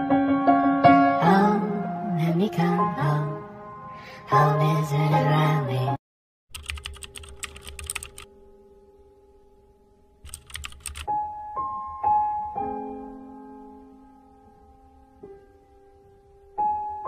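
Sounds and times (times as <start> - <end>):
keyboard key clicks: 6.6 - 8.3, 10.3 - 11.1.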